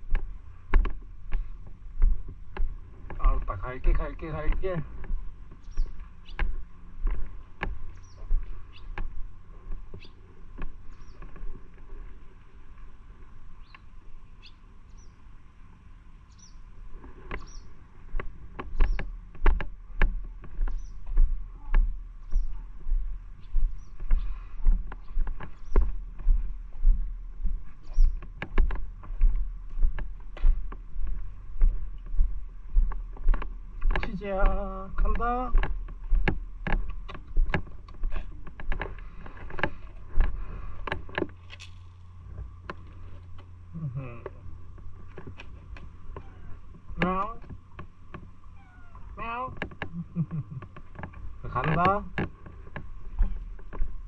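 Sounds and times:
footsteps on pavement: 0.0 - 14.2, 16.4 - 41.4, 50.7 - 54.0.

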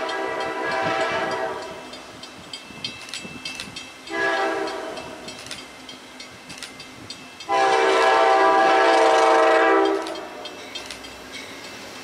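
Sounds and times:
train air horn blasts: 0.0 - 1.8, 4.1 - 5.2, 7.5 - 10.4.

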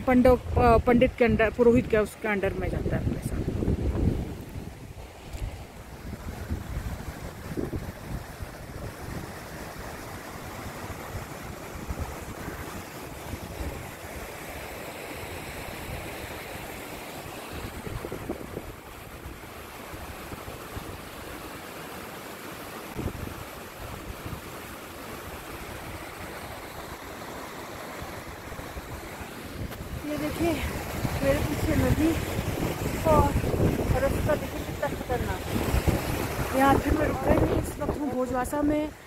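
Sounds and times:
wind buffeting microphone: 0.0 - 14.3, 17.5 - 21.2, 22.9 - 26.9, 28.0 - 39.0
stream rushing over boulders: 0.0 - 39.0.

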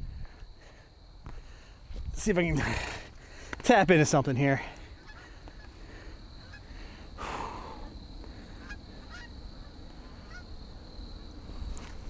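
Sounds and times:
wind rumble on microphone: 0.0 - 0.5, 1.3 - 3.1
geese honking in the distance: 4.6 - 7.0, 7.6 - 10.7.

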